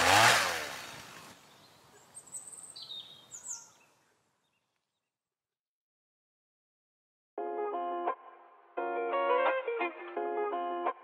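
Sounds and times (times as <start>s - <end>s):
high bird chirps: 1.5s - 4.7s.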